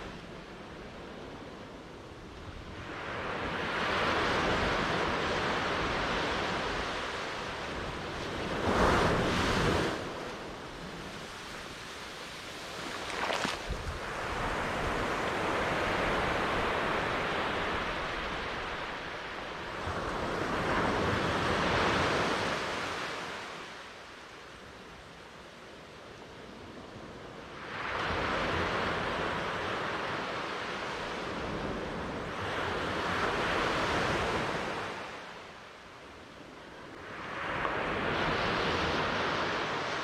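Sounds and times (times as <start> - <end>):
sea waves breaking: 8.3 - 23.5
water splash: 12.6 - 14.0.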